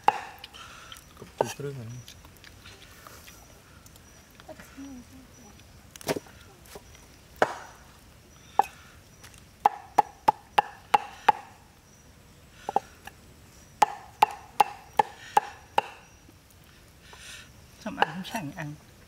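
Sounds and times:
cleaver chopping on wooden block: 0:00.0 - 0:00.5, 0:09.6 - 0:11.5, 0:13.8 - 0:16.0.

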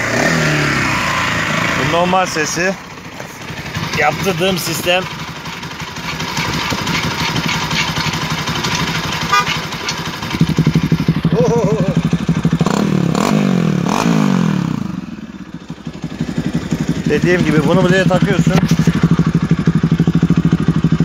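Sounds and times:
motorcycle engine idling and revving: 0:00.0 - 0:21.0.

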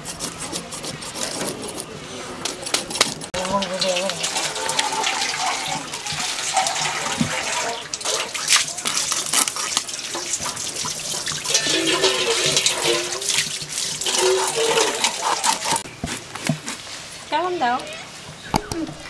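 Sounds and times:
knife scraping fish scales: 0:00.0 - 0:03.1, 0:08.8 - 0:16.8.

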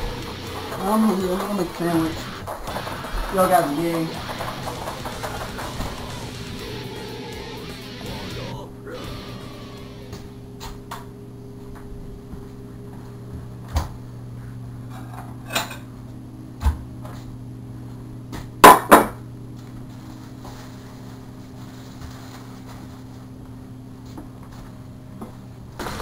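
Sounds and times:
sharp bangs: 0:00.0 - 0:10.4
steady low hum: 0:00.0 - 0:26.0.

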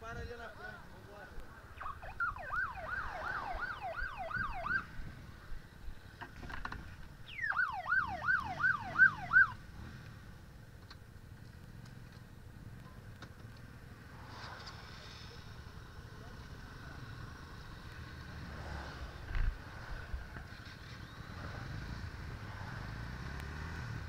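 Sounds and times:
siren yelping: 0:01.8 - 0:04.9, 0:07.3 - 0:09.6.

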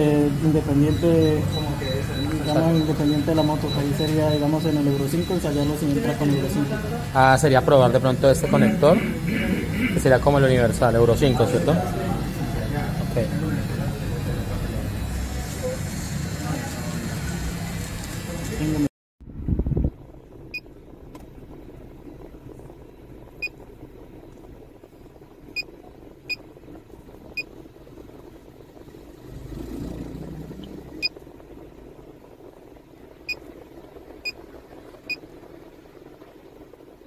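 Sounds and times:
steady low hum: 0:00.0 - 0:37.0
short high key beeps: 0:00.8 - 0:06.6.

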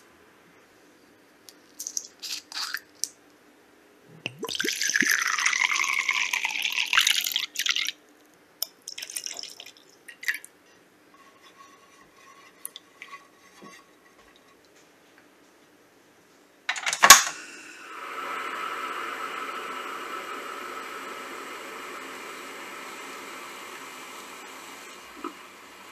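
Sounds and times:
liquid pouring into a glass: 0:04.3 - 0:08.0, 0:08.8 - 0:10.5
spatula scraping a saucepan: 0:11.1 - 0:14.6
gas burner hissing: 0:17.1 - 0:25.9.

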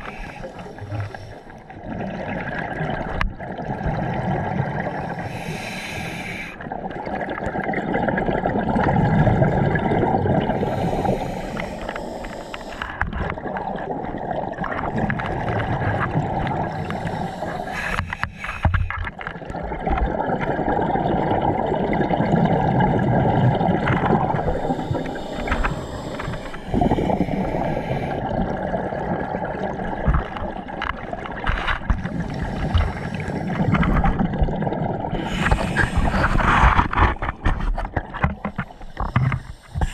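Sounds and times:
regulator hissing inhale: 0:00.0 - 0:01.7, 0:05.0 - 0:06.6, 0:10.5 - 0:13.0, 0:16.5 - 0:19.0, 0:24.4 - 0:28.3, 0:32.2 - 0:34.0, 0:35.2 - 0:36.5, 0:38.4 - 0:39.9
exhaled air bubbling underwater: 0:00.0 - 0:39.9.

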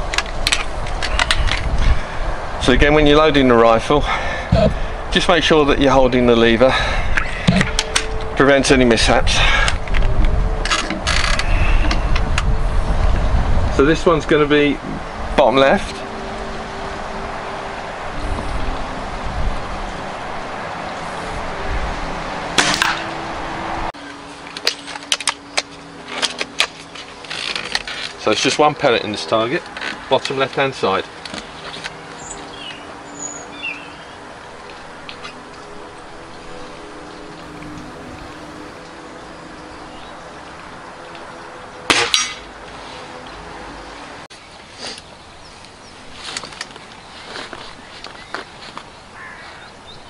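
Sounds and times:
wind buffeting microphone: 0:00.0 - 0:23.9, 0:37.2 - 0:38.9
faint steady hum: 0:37.3 - 0:38.9.

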